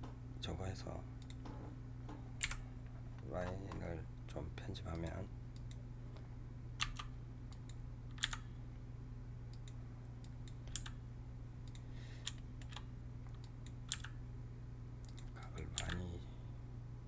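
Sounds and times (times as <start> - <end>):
keyboard and mouse clicks: 2.4 - 2.6, 6.8 - 8.5, 9.5 - 11.0, 11.6 - 14.2, 15.0 - 16.1.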